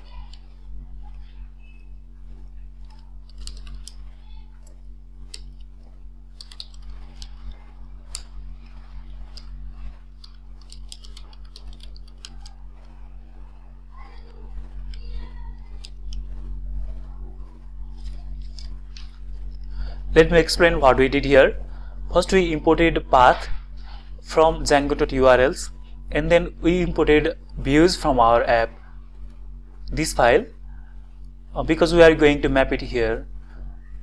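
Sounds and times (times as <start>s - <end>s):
low electrical hum: 0.0s - 34.0s.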